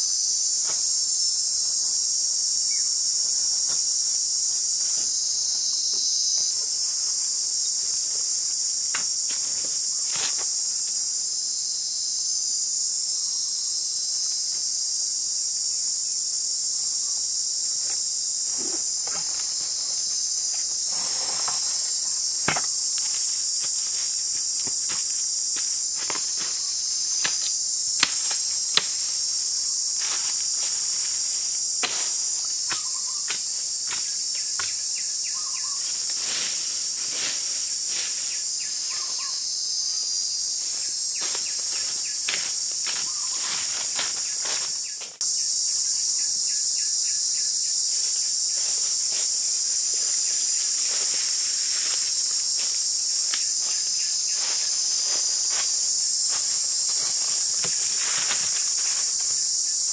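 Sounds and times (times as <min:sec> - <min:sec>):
insects droning: 0:00.0 - 0:59.9
footsteps in dry leaves: 0:18.0 - 0:28.5, 0:35.6 - 0:39.0, 0:40.7 - 0:44.9, 0:48.5 - 0:59.6
machete chopping: 0:22.4 - 0:23.7.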